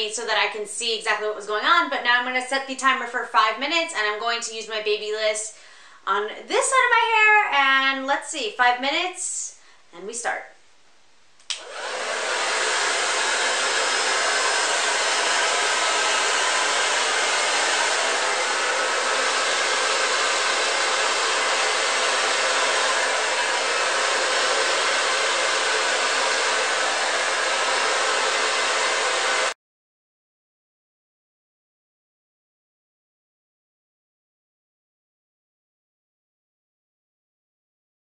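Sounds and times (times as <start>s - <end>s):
hair dryer switch click: 11.4s - 11.9s
hair dryer blowing: 11.5s - 29.6s.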